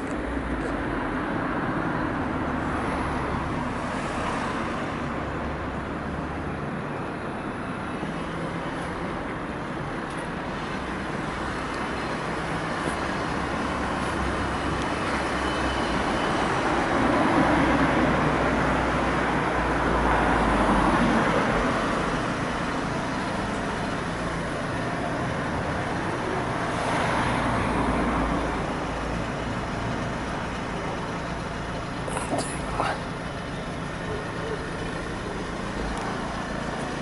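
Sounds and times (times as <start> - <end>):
vehicles passing: 0.0 - 37.0.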